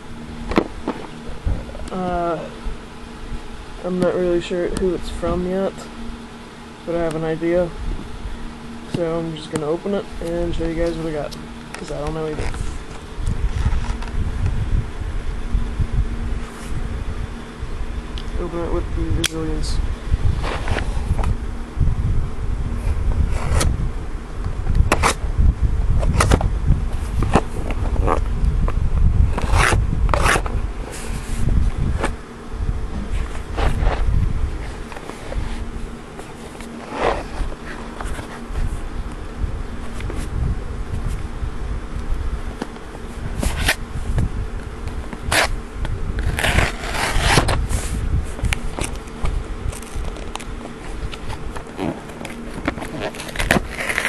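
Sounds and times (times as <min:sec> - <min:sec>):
low buzzing hum: 0:00.0 - 0:54.0
camera handling rumble: 0:00.4 - 0:02.0, 0:08.9 - 0:14.6, 0:20.2 - 0:21.4, 0:22.8 - 0:23.8, 0:24.4 - 0:25.2, 0:26.0 - 0:32.2, 0:32.9 - 0:39.2, 0:39.8 - 0:41.3, 0:42.0 - 0:54.0
scraping on cardboard box: 0:20.3 - 0:21.3, 0:23.2 - 0:23.8, 0:24.9 - 0:25.2, 0:29.3 - 0:32.2, 0:33.0 - 0:38.8, 0:43.2 - 0:43.8, 0:45.2 - 0:45.6, 0:46.2 - 0:54.0.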